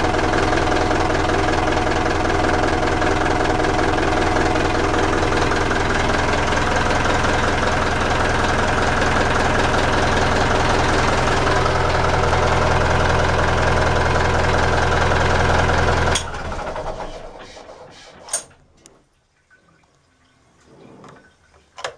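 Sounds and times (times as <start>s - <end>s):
marine diesel engine idling: 0.0s - 17.4s.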